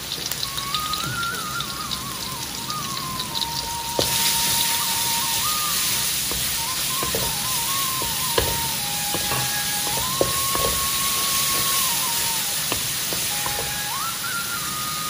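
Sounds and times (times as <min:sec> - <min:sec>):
chilies sizzling in hot oil: 0:00.0 - 0:15.0
thin wavering melody: 0:00.4 - 0:15.0
wooden spatula scraping wok: 0:06.2 - 0:13.9.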